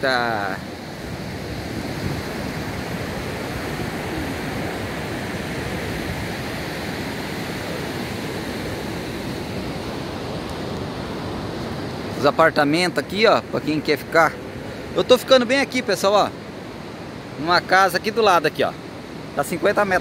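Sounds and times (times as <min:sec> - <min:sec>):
ocean surf breaking: 0:00.0 - 0:20.0
wind on microphone: 0:00.6 - 0:12.1.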